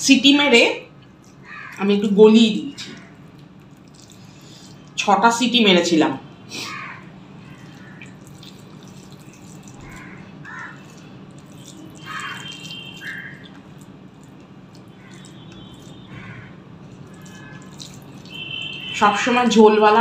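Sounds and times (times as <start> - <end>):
fingers squishing wet food: 2.9 - 5.0, 7.4 - 18.8.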